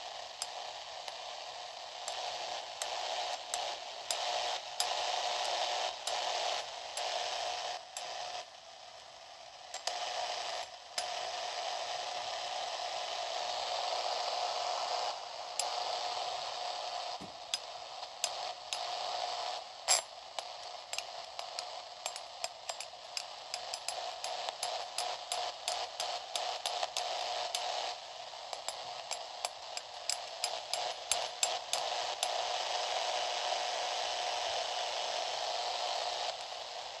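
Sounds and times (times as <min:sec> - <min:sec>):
radio static hiss: 0:00.0 - 0:37.0
sharp clicks and crackles: 0:17.2 - 0:32.4.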